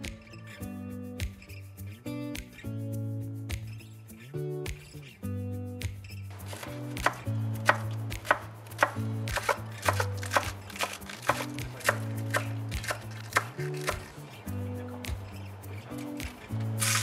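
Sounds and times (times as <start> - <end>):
background music: 0.0 - 17.0
knife chopping on wooden board: 6.4 - 14.1.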